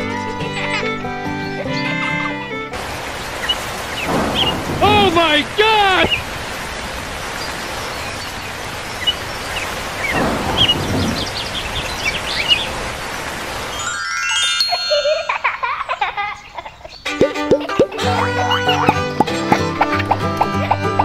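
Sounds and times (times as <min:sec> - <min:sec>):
birds chirping: 0:01.4 - 0:21.0
steady rain: 0:02.7 - 0:14.5
chime-like music: 0:13.7 - 0:16.2.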